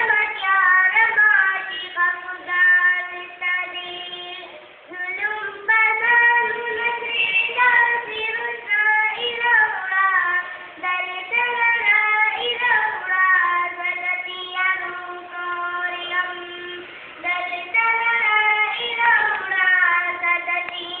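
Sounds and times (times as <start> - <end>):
girl singing solo: 0.0 - 21.0.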